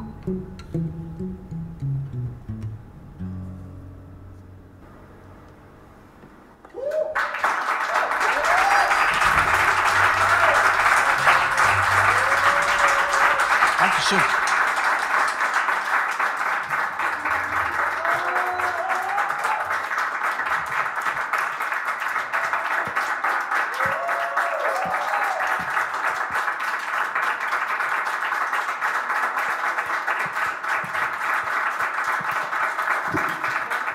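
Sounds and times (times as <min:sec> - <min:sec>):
dense steady clapping: 0:07.2 - 0:33.9
voice calling out: 0:13.7 - 0:14.4.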